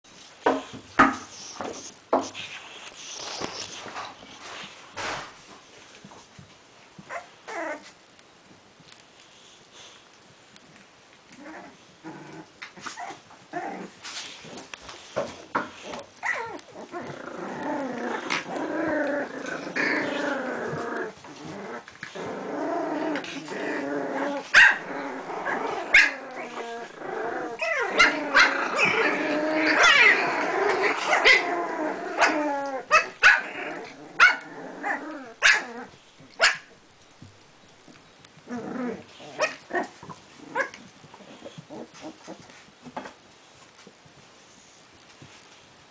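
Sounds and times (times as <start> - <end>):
puppies growling and barking: 7.0 - 8.0, 10.7 - 44.2.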